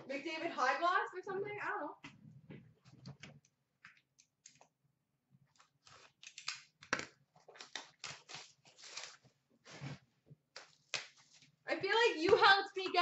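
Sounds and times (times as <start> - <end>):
card pack wrappers crinkling and tearing: 5.5 - 9.3.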